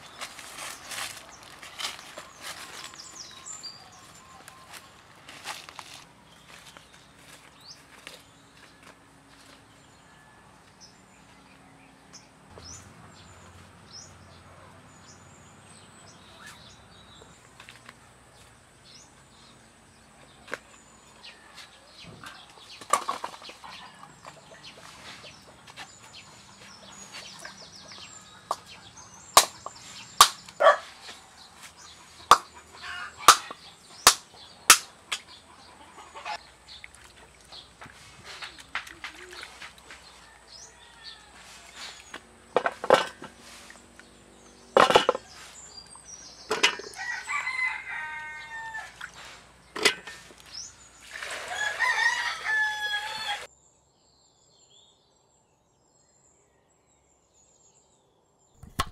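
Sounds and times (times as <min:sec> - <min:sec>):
small birds chirping: 0:00.0 - 0:42.6
sharp knocks or slaps: 0:29.4 - 0:30.4, 0:32.3 - 0:32.5, 0:33.3 - 0:35.2, 0:58.6 - 0:58.9.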